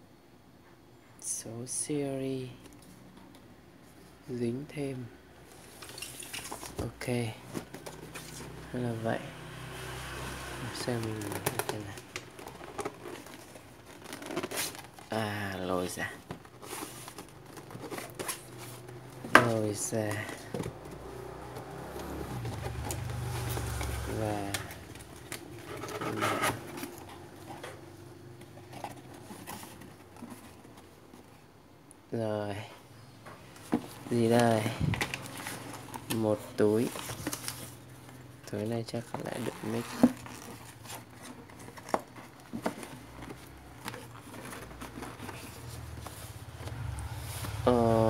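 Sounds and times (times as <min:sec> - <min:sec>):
faint packaging rustling: 0:05.4 - 0:09.2, 0:09.9 - 0:31.6, 0:33.4 - 0:48.0
cardboard rubbing and scraping: 0:07.4 - 0:08.7, 0:10.2 - 0:15.2, 0:15.9 - 0:27.6, 0:28.4 - 0:31.3, 0:39.0 - 0:48.0.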